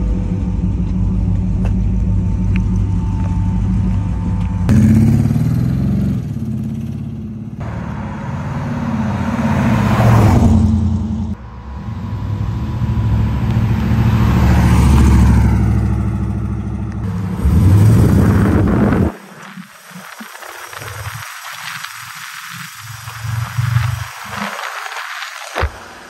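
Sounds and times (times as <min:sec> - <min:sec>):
pickup truck vee eight engine passing: 0:07.6 - 0:19.1.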